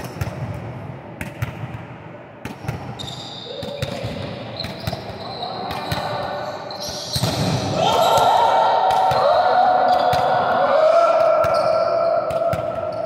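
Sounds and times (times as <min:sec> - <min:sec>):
volleyballs bouncing on gym floor: 0:00.0 - 0:13.0.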